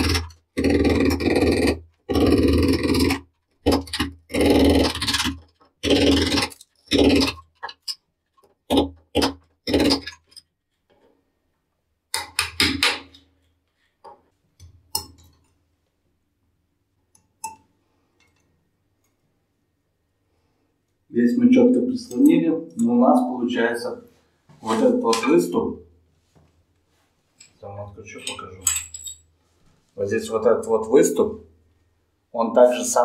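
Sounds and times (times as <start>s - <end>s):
metal clicks and clinks: 28.2s - 29.2s
metal parts scraping: 28.2s - 29.3s.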